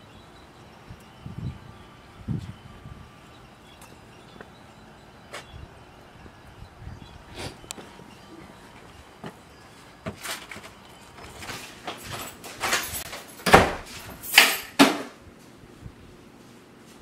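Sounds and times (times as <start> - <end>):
door opening and shutting: 10.0 - 15.1.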